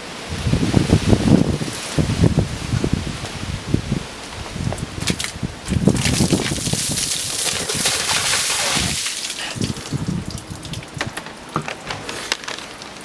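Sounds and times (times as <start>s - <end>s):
water dripping and splattering: 5.0s - 11.8s
water pouring and splashing: 5.0s - 13.0s
person gasping: 9.2s - 9.8s.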